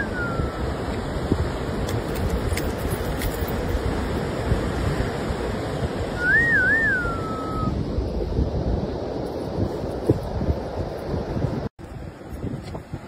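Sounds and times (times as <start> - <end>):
warbling whistle: 0.0 - 0.7, 6.2 - 7.8
surf breaking on a beach: 0.0 - 13.0
wind on microphone: 0.0 - 13.0.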